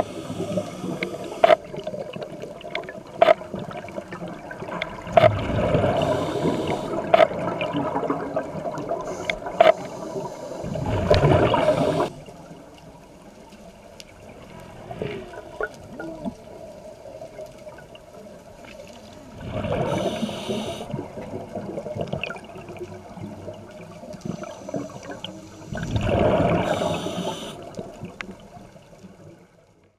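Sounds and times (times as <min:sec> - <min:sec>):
underwater noise: 0:00.0 - 0:29.8
diver's bubbles rushing: 0:03.2 - 0:09.0, 0:10.6 - 0:12.1, 0:25.7 - 0:27.0.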